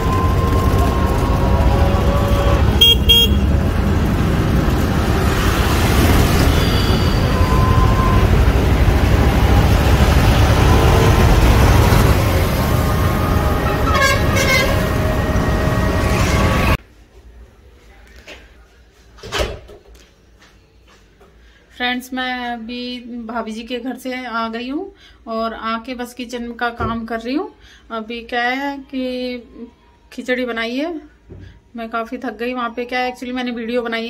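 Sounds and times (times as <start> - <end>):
road rumble and wind noise: 0.0 - 16.8
vehicle horn toots: 2.1 - 3.6, 13.6 - 15.1.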